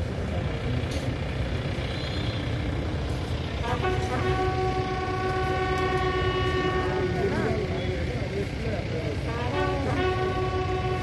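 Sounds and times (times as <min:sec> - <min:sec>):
crowd and street noise: 0:00.0 - 0:11.0
brass instrument notes: 0:03.6 - 0:07.6, 0:09.2 - 0:11.0.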